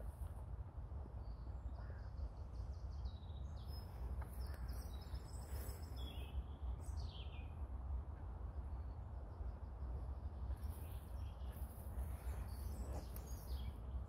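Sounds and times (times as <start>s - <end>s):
faint bird chirps: 9.4s - 14.0s.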